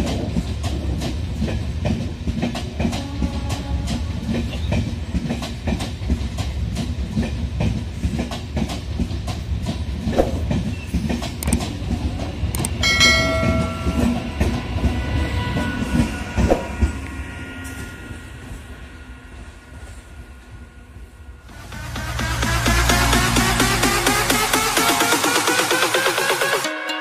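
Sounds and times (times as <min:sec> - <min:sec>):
train wheels clattering over rail joints: 0:00.0 - 0:17.0
train horn: 0:02.8 - 0:04.5.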